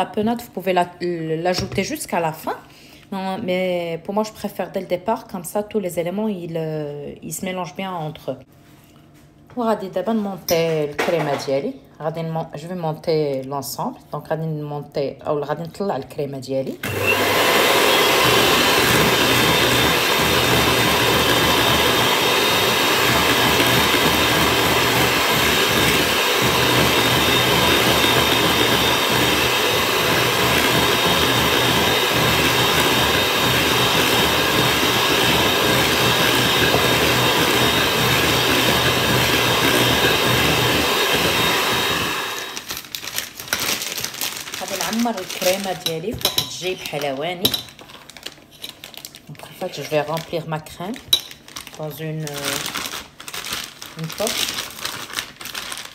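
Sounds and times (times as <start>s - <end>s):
electric hand mixer running: 16.8s - 42.7s.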